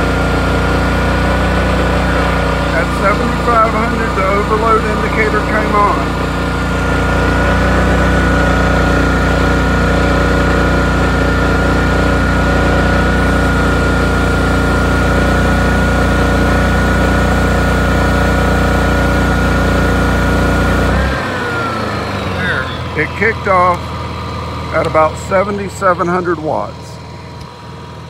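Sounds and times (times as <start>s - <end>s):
generator engine running: 0.0s - 28.0s
high-pitched alarm whine: 21.0s - 24.1s.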